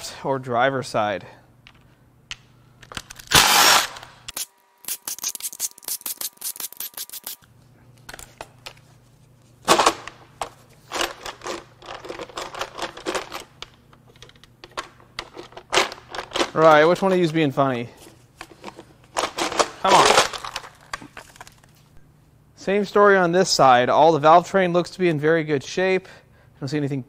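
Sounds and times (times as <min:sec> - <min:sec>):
impact driver running: 0:03.3 - 0:04.1.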